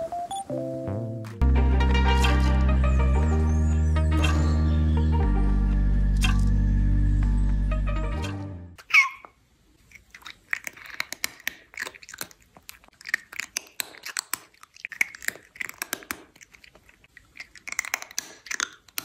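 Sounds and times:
music: 0.0 - 8.8
cat chewing with crunches: 9.7 - 19.0.

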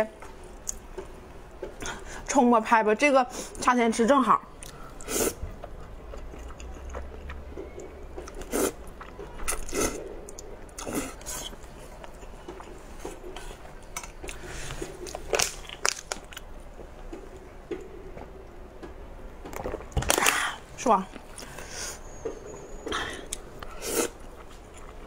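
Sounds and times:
person slurping and chewing noodles: 4.6 - 15.5, 22.9 - 25.0.

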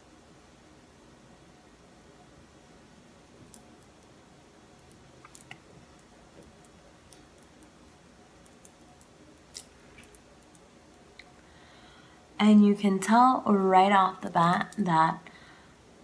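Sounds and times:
steady room hiss: 0.0 - 16.0
small clicks and ticks: 4.8 - 7.7.

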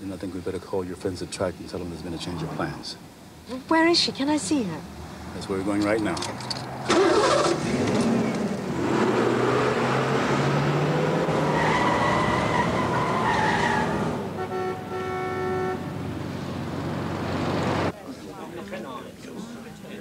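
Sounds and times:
city traffic: 0.0 - 18.5
car engine pulling away: 6.4 - 14.4
car horn: 13.9 - 16.0.

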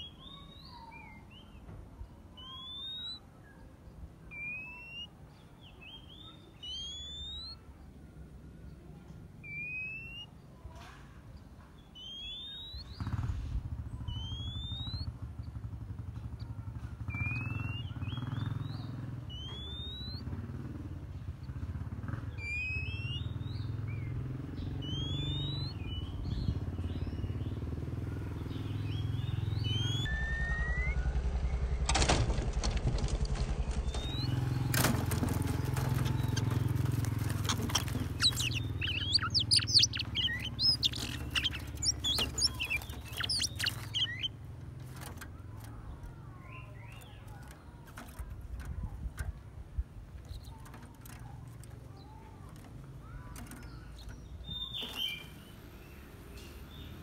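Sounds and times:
bird whistled notes: 2.3 - 3.3, 4.3 - 5.1, 5.7 - 7.6, 9.4 - 10.4, 11.9 - 13.1, 14.0 - 15.1, 17.1 - 20.2, 22.3 - 24.1, 24.8 - 26.4, 28.8 - 31.6, 33.8 - 34.7, 37.4 - 44.3, 54.2 - 55.5
quick sharp bird calls: 2.3 - 3.6, 4.3 - 7.7, 11.4 - 15.6, 16.3 - 20.5, 21.4 - 27.6, 28.2 - 30.9, 33.6 - 49.0, 50.2 - 57.0
wing flapping: 31.8 - 46.3.

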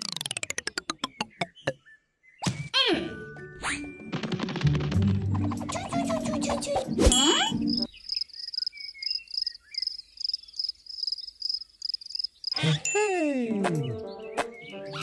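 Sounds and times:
cartoon crickets chirping: 7.3 - 12.6.

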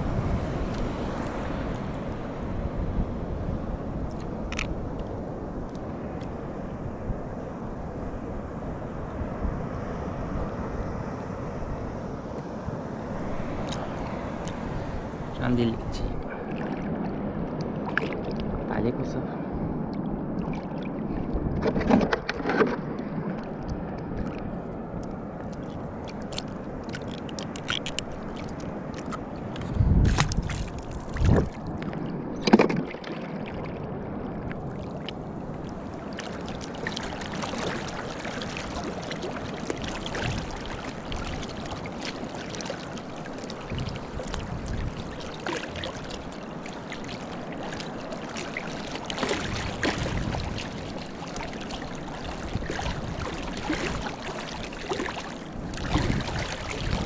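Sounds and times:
water sloshing and splashing: 4.0 - 6.4, 13.1 - 18.9, 19.7 - 57.0
swim fins kicking water: 25.4 - 31.7, 36.2 - 57.0.

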